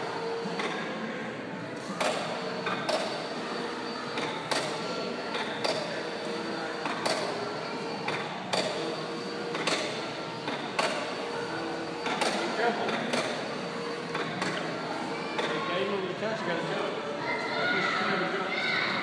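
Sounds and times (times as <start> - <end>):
background hubbub: 0.0 - 19.0.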